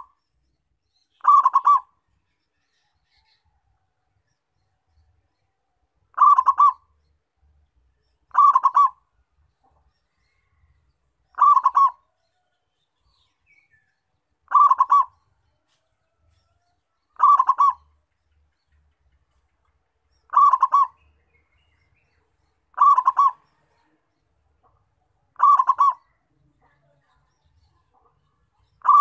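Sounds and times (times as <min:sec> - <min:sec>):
dove cooing: 0:01.2 - 0:01.9, 0:06.1 - 0:06.8, 0:08.3 - 0:09.0, 0:11.4 - 0:12.0, 0:14.5 - 0:15.2, 0:17.2 - 0:17.9, 0:20.3 - 0:21.0, 0:22.7 - 0:23.4, 0:25.4 - 0:26.2, 0:28.8 - 0:29.0.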